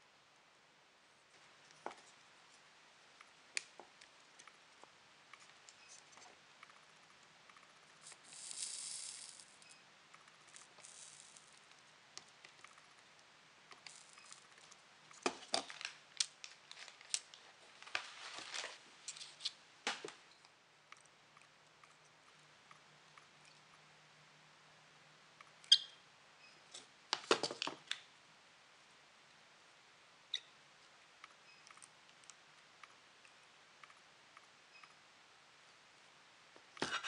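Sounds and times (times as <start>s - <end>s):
small parts clicking and rustling: 7.5s - 17.4s.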